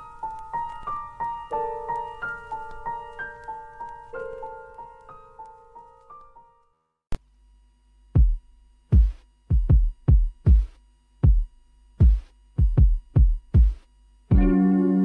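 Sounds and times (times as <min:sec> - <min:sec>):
piano phrase: 0:00.0 - 0:06.6
drum machine kick drums: 0:08.2 - 0:14.6.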